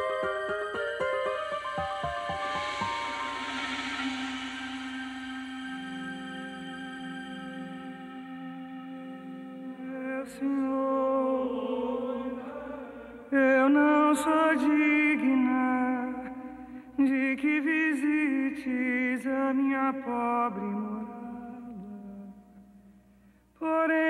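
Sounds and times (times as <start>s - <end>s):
person singing chant-like phrases: 9.5s - 15.5s.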